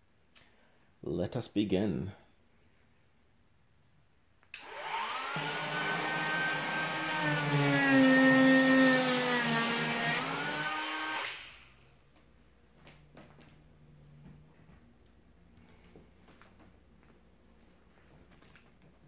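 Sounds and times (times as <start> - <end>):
rotary tool whining: 4.6 - 11.9.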